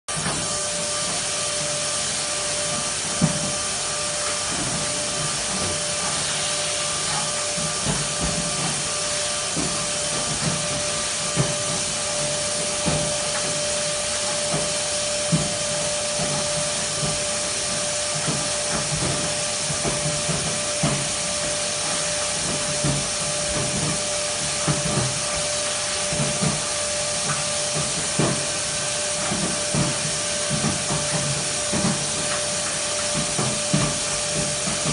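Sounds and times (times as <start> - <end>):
vacuum rushing through ductwork: 0.1 - 34.9.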